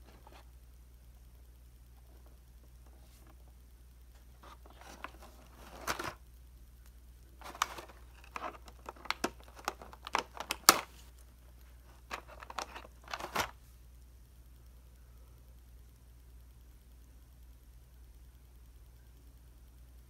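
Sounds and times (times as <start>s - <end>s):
plastic blister pack crinkling: 4.4s - 6.2s, 7.4s - 13.6s.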